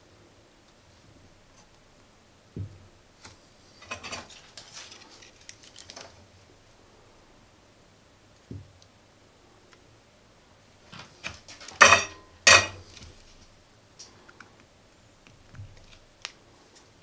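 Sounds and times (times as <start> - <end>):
soft low thump: 2.6 - 2.9
small clicks and rustles: 3.2 - 6.5, 12.9 - 17.0.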